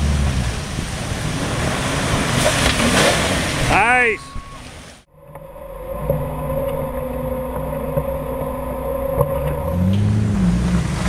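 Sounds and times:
engine running and revving: 0:00.0 - 0:02.9, 0:05.1 - 0:11.0.

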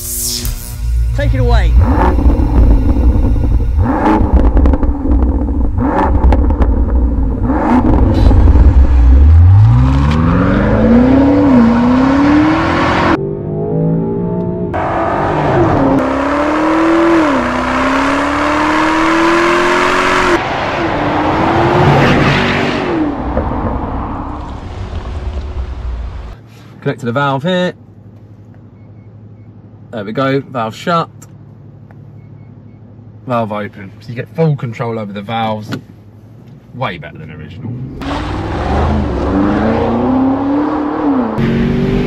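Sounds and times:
exhaust pops: 0:01.0 - 0:09.0
car engine accelerating hard: 0:01.2 - 0:26.4, 0:37.6 - 0:42.0.

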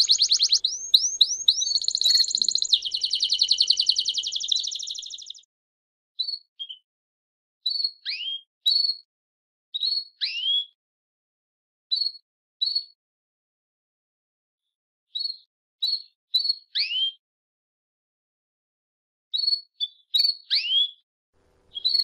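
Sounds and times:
songbird singing: 0:00.0 - 0:05.4, 0:21.4 - 0:22.0.

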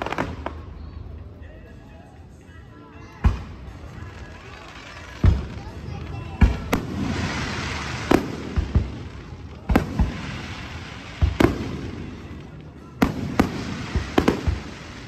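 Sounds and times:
continuous noisy hiss: 0:00.0 - 0:15.0
fireworks bangs: 0:03.3 - 0:15.0.

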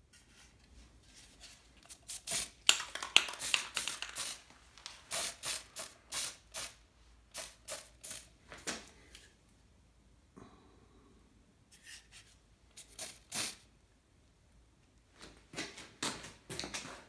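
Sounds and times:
spray paint can hissing: 0:01.9 - 0:04.4, 0:05.1 - 0:08.3, 0:12.8 - 0:13.6.

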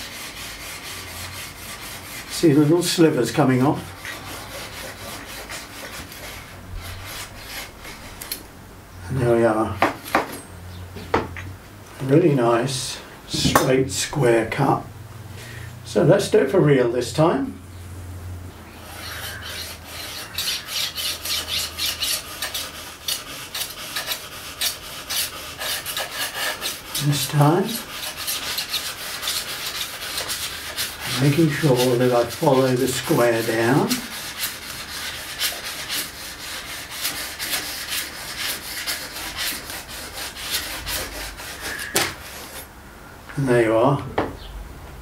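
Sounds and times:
knife sawing through fabric: 0:00.0 - 0:08.4, 0:18.8 - 0:42.7.

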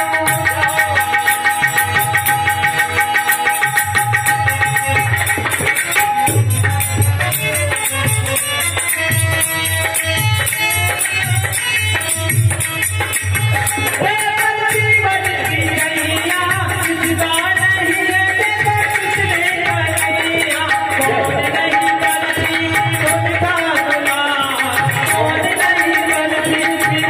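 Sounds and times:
man singing: 0:00.0 - 0:08.9, 0:13.1 - 0:27.0
harmonium chords: 0:00.0 - 0:27.0
small hand percussion: 0:00.0 - 0:27.0
hand drum beat: 0:01.6 - 0:08.3.

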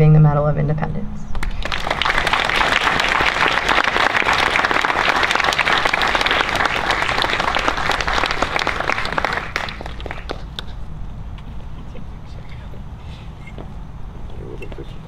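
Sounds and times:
audience applauding: 0:01.4 - 0:10.8.

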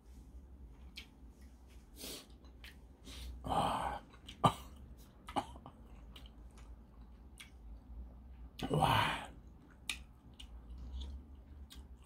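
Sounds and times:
man coughing: 0:03.5 - 0:05.8.

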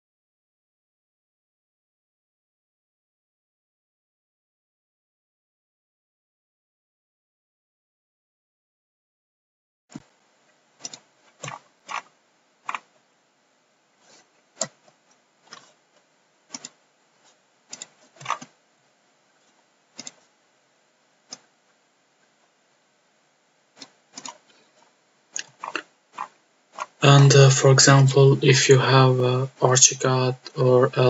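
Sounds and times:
faint room hiss: 0:09.9 - 0:31.0
mouse and keyboard clicks: 0:10.8 - 0:12.1, 0:12.7 - 0:12.9, 0:14.1 - 0:15.8, 0:16.5 - 0:16.8, 0:17.7 - 0:18.6, 0:20.0 - 0:20.3, 0:21.3 - 0:21.5, 0:23.8 - 0:24.5.

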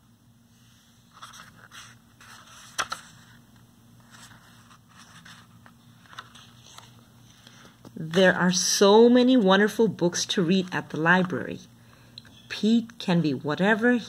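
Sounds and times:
book pages turning: 0:00.8 - 0:08.4.

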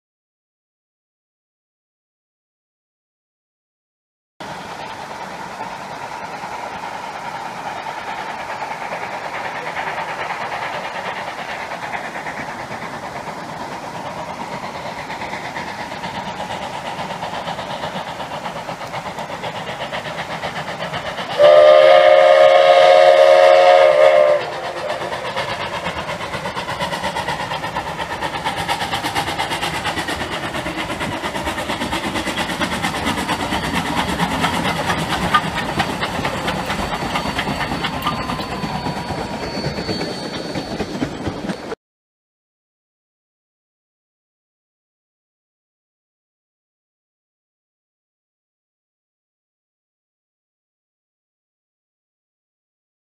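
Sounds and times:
steam train running: 0:04.4 - 0:41.8
steam locomotive whistle: 0:21.4 - 0:25.4.

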